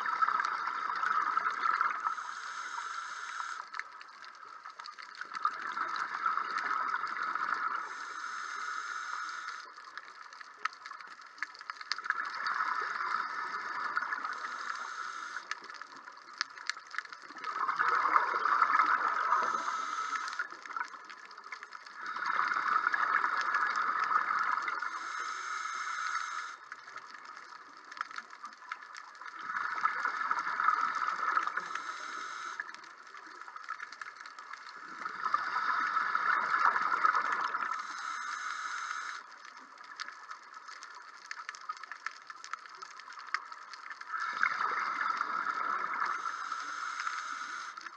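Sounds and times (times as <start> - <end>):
exhaled bubbles gurgling underwater: 0.0 - 47.9
scuba regulator hiss: 2.1 - 3.7, 7.8 - 9.7, 14.3 - 15.5, 19.2 - 20.5, 24.8 - 26.6, 31.6 - 32.7, 37.7 - 39.2, 46.2 - 47.9.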